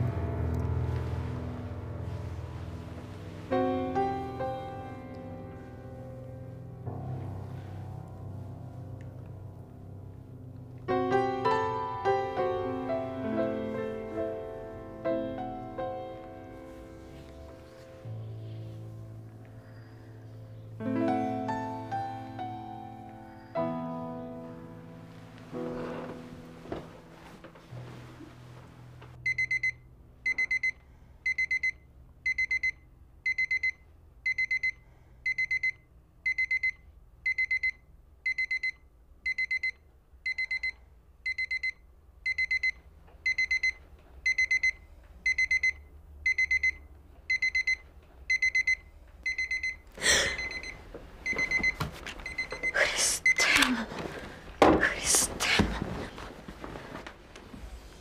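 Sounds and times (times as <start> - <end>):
rustling and handling noises: 25.0 - 29.2, 50.4 - 52.7, 53.8 - 58.0
alarm clock beeping: 29.2 - 53.7.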